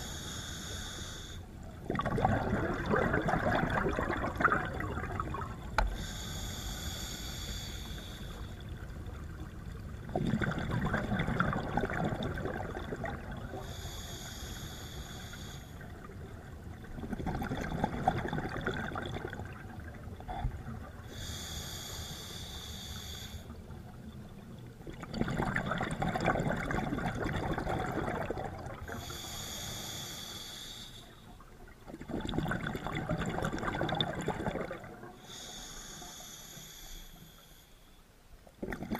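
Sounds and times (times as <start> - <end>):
regulator hissing inhale: 0.0 - 1.5, 5.8 - 8.6, 13.6 - 15.9, 21.0 - 23.6, 28.9 - 31.4, 35.2 - 38.1
rush of exhaled bubbles: 1.8 - 5.8, 8.8 - 13.8, 16.0 - 21.1, 24.8 - 29.2, 31.9 - 35.2, 38.6 - 38.9.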